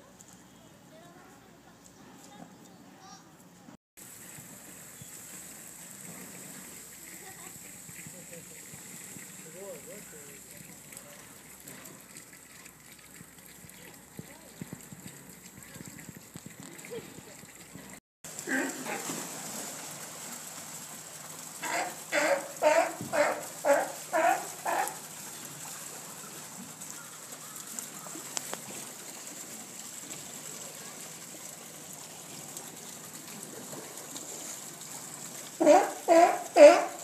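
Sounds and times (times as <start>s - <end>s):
faint water noise: 0.0s - 37.0s
sea lion barking: 21.6s - 25.0s, 35.6s - 37.0s.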